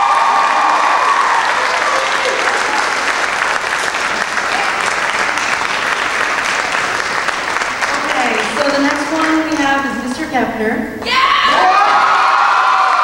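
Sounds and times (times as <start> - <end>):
audience clapping: 0.0 - 9.9.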